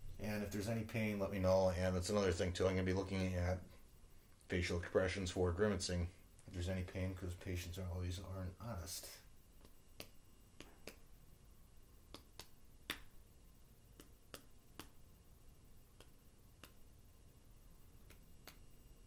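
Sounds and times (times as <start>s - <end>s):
faint irregular clicks: 9.6s - 11.2s, 12.1s - 13.2s, 13.8s - 15.1s, 15.9s - 17.0s, 17.9s - 18.9s.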